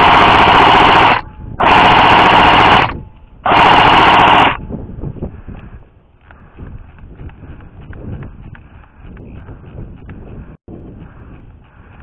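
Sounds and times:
airsoft gun full-auto bursts: 0.0 - 4.6.

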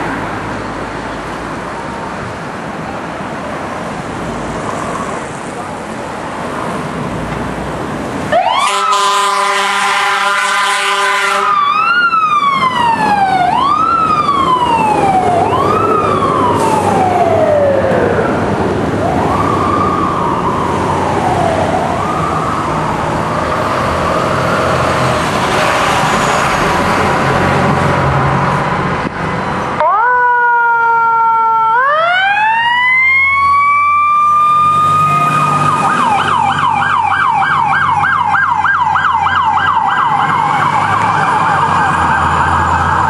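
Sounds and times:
fire truck siren wailing: 8.2 - 28.0, 29.6 - 43.0
fire truck horn blast: 8.4 - 11.7.

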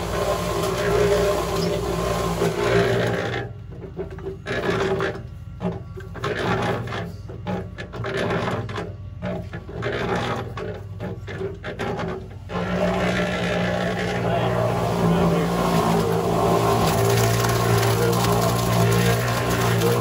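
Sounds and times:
concrete mixer motor hum: 0.0 - 20.0
wet concrete scraping out: 12.5 - 20.0.

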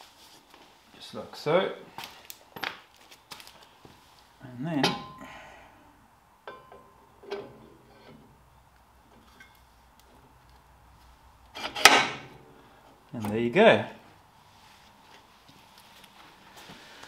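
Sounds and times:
metal clinks and knocks: 6.4 - 7.5
loud metal clunk: 11.6 - 12.4.

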